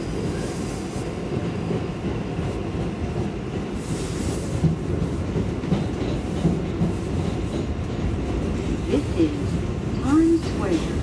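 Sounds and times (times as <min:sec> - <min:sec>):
subway car rumble: 0:00.0 - 0:11.0
wheels clacking over rail joints: 0:04.6 - 0:11.0.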